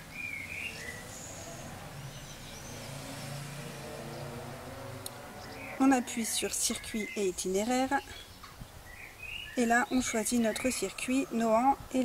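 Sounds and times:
vehicle engine rumbling: 0.0s - 8.6s
bird chirping: 0.0s - 12.0s.

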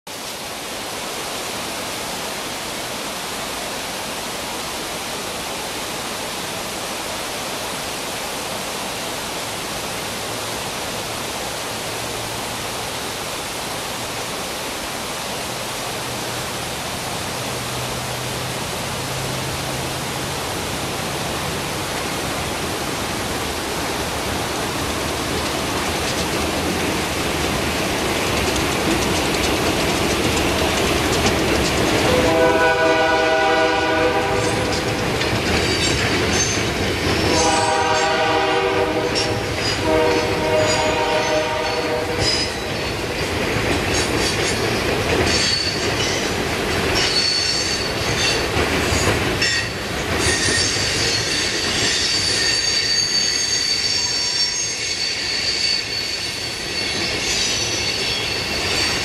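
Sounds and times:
steady rushing noise: 0.1s - 37.8s
freight train diesel locomotive drone: 0.2s - 59.0s.

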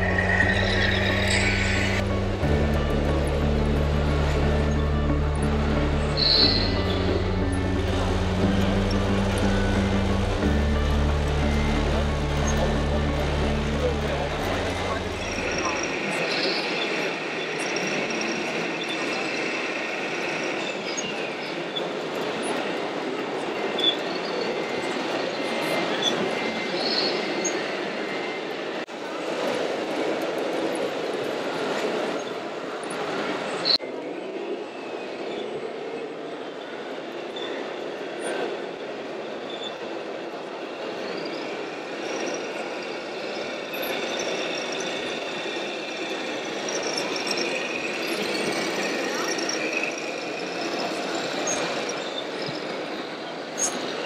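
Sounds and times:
busy exhibition hall din: 0.0s - 16.2s.

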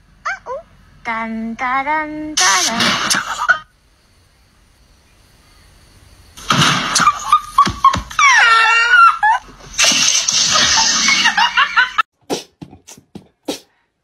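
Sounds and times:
person laughing hard: 10.4s - 12.0s.

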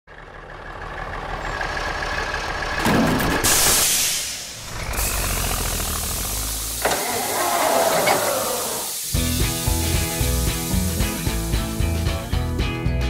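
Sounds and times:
cartoon bulldozer engine: 0.1s - 12.3s
steam hissing: 3.4s - 12.2s.

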